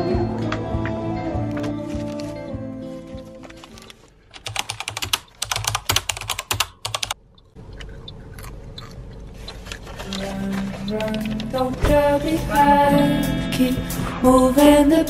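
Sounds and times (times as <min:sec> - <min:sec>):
soft background music: 0:00.0 - 0:03.9, 0:10.1 - 0:15.0.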